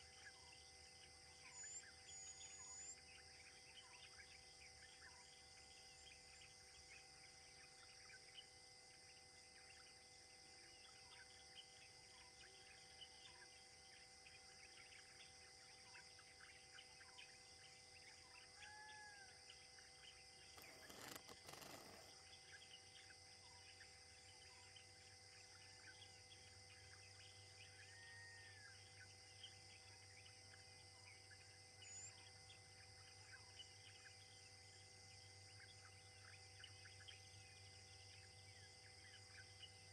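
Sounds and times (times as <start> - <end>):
high insect drone: 0.0 - 39.9
short bird chirps: 20.5 - 22.7.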